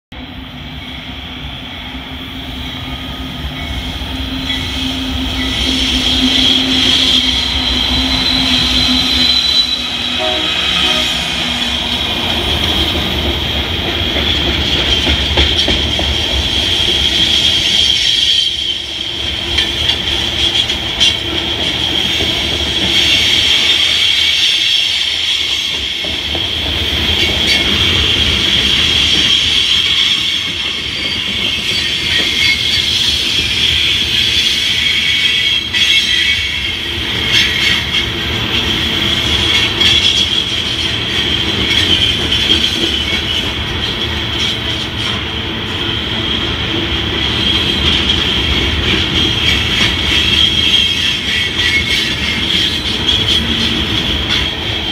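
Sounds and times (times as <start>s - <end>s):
diesel locomotives: 0.1s - 54.9s
train cars rolling past: 0.2s - 54.9s
steel wheels squealing: 0.6s - 13.2s, 14.3s - 54.9s.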